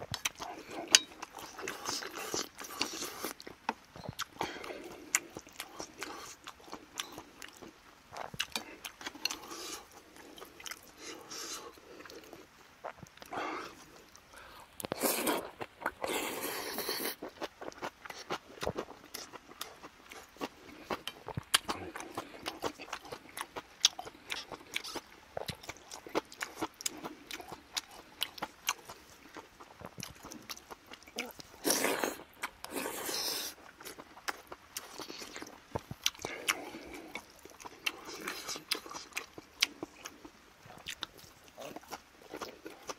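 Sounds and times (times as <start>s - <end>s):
chewing: 0.0s - 42.9s
slurping soup: 14.8s - 17.2s, 31.6s - 33.6s.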